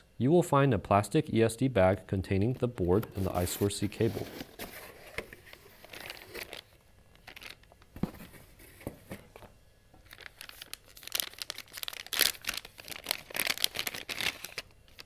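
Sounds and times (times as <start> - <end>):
plastic bag crinkling: 2.7 - 7.9, 10.0 - 15.0.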